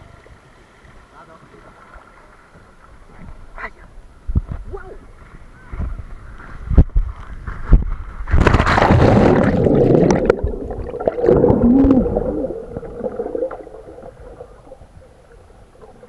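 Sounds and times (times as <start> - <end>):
underwater rushing and bubbling: 8.1 - 16.0
body knocking down water slide: 8.3 - 10.4
loud splash into pool: 8.3 - 13.7.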